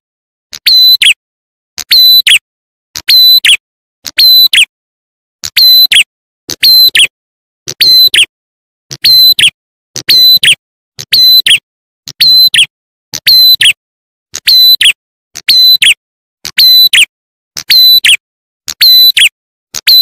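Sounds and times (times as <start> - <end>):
songbird whistling call: 0.6 - 1.2, 1.9 - 2.4, 3.0 - 3.6, 4.2 - 4.7, 5.5 - 7.1, 7.8 - 8.3, 9.0 - 11.6, 12.2 - 13.8, 14.5 - 16.0, 16.6 - 18.2, 18.8 - 20.0.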